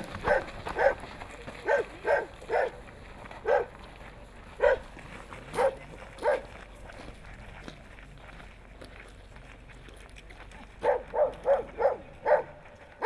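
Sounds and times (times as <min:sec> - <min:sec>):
dog barking: 0:00.2 - 0:01.0, 0:01.6 - 0:02.8, 0:03.4 - 0:03.7, 0:04.6 - 0:04.8, 0:05.5 - 0:06.5, 0:10.8 - 0:12.6.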